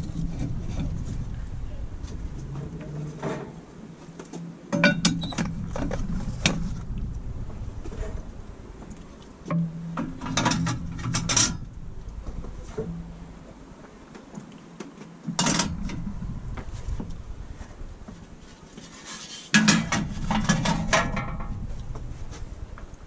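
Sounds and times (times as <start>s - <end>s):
metal clanking and scraping on metal: 0.0s - 3.6s, 4.7s - 13.4s, 15.3s - 22.7s.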